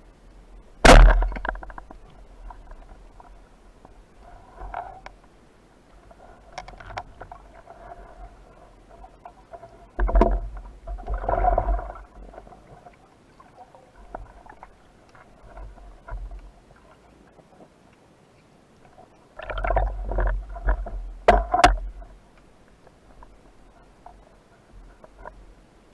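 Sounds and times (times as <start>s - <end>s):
rumble of moving water: 0.0s - 25.9s
underwater clicks and knocks: 0.9s - 3.4s, 6.5s - 7.5s, 9.9s - 12.5s, 19.4s - 23.4s, 24.8s - 25.4s.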